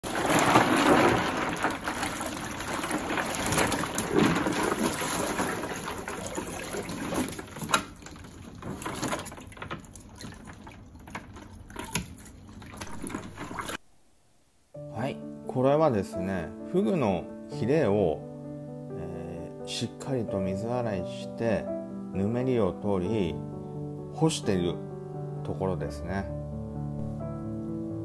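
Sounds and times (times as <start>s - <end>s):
tap water pouring into box: 0.0s - 13.8s
water splashing and sloshing: 0.0s - 13.8s
water dripping: 1.5s - 13.8s.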